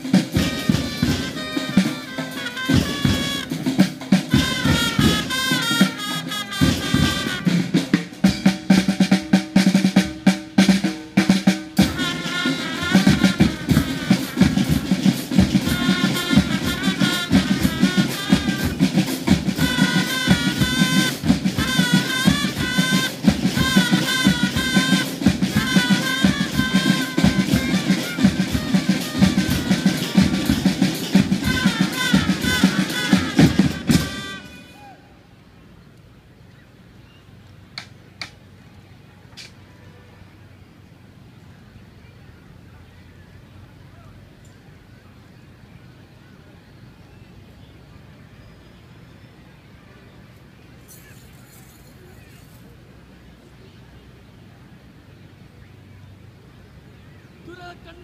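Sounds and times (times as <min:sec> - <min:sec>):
snare and bass drums: 0:00.0 - 0:34.7
wind instruments melody: 0:00.0 - 0:35.3.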